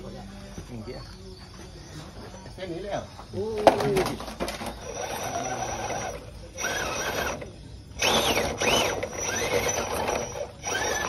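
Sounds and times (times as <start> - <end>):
electric motor whining: 4.6 - 11.0.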